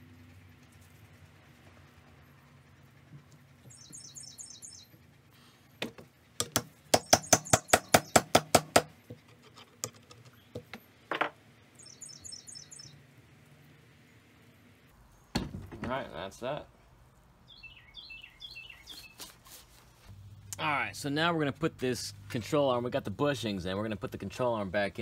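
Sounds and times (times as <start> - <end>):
bird chirping: 2.1 - 5.7, 6.9 - 8.4, 11.7 - 13.1, 17.4 - 19.4.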